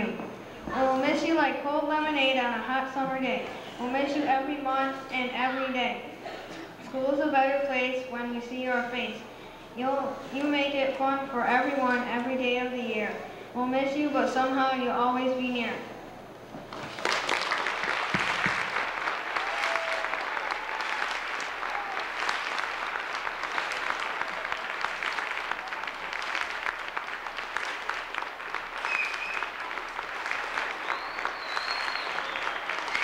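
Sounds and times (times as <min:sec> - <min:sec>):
audience clapping: 0:16.7 - 0:33.0.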